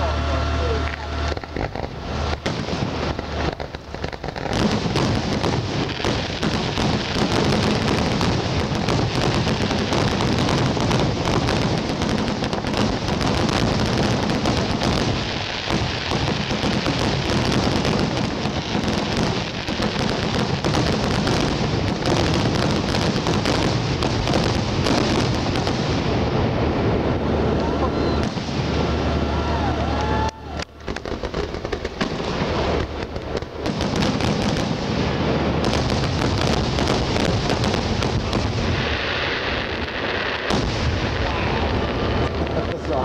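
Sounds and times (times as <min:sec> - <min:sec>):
fireworks bursting and crackling: 0:00.0 - 0:43.0.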